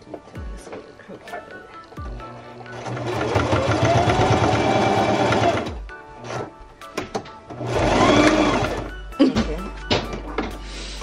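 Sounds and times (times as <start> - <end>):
sewing machine stitching: 2.7 - 6.5, 7.6 - 8.9.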